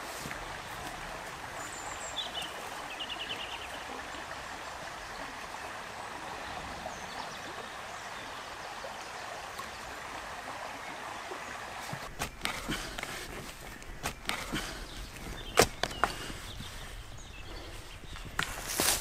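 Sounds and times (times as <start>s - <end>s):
running water rushing: 0.0s - 19.0s
digging tool striking soil: 12.1s - 12.7s.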